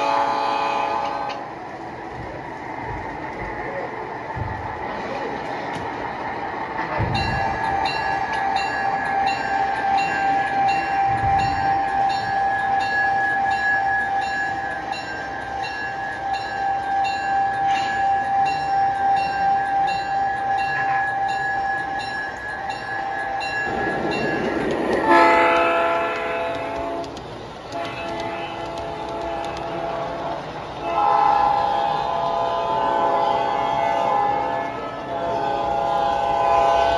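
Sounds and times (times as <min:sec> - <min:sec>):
model diesel horn: 0:00.0 - 0:01.5, 0:25.0 - 0:27.1, 0:27.7 - 0:36.9
model train whine: 0:05.1 - 0:36.9.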